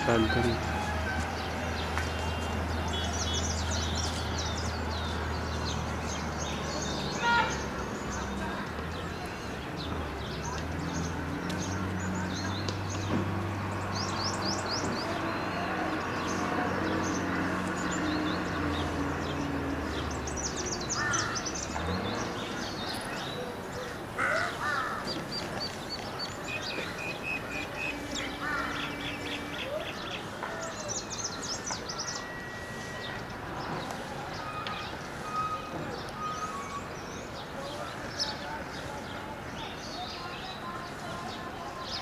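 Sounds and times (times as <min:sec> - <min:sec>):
small birds chirping: 0:00.0 - 0:42.0
crows cawing: 0:21.0 - 0:21.4, 0:24.2 - 0:25.2, 0:28.3 - 0:29.2.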